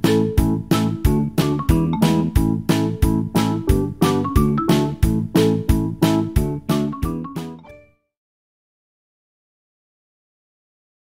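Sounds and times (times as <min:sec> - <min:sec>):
upbeat keyboard music with beat: 0:00.0 - 0:08.0.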